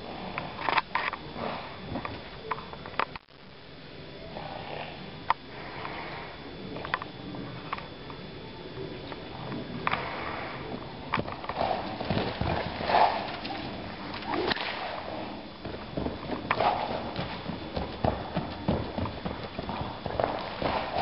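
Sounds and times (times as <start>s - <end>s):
horse hooves thudding in sand: 11.2s - 21.0s.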